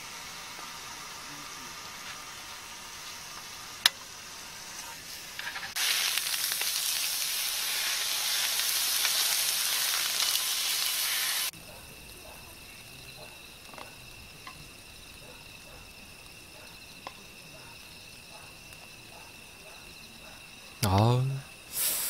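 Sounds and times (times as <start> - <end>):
meat sizzling on grill plate: 0.0 - 11.6, 21.7 - 22.0.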